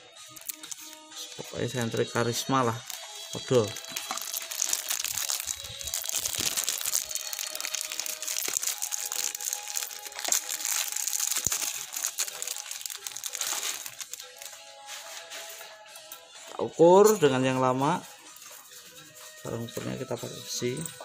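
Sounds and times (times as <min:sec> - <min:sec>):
plastic wrapping crinkling: 0:00.3 - 0:01.0, 0:01.6 - 0:15.7.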